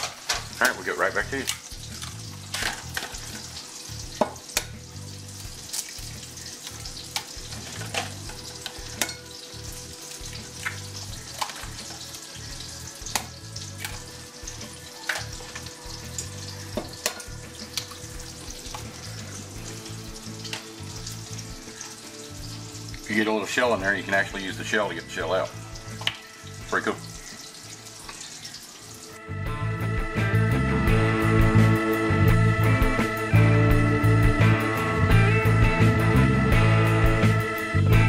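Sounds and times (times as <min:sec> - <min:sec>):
bacon and sausage sizzling: 0:00.0 - 0:38.0
sharp pops of frying fat: 0:01.4 - 0:04.8, 0:05.6 - 0:09.3, 0:10.2 - 0:12.1, 0:13.0 - 0:19.0, 0:25.9 - 0:26.3.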